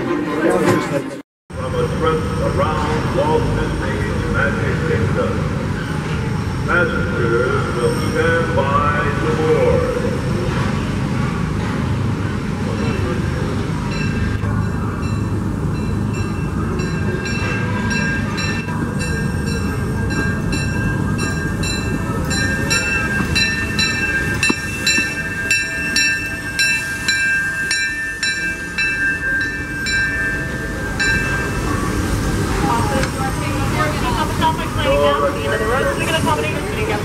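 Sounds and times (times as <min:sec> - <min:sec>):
train rumbling: 0:00.0 - 0:37.0
locomotive bell ringing: 0:12.6 - 0:37.0.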